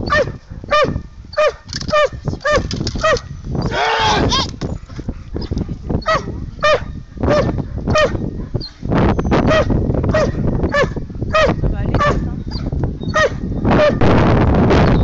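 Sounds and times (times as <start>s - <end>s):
dog barking: 0.0s - 3.3s, 5.4s - 8.8s, 9.4s - 14.0s.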